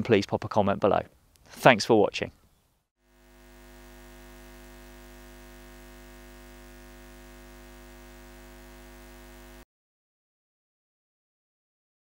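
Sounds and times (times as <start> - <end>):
neon sign electrical buzz: 3.0 - 9.6.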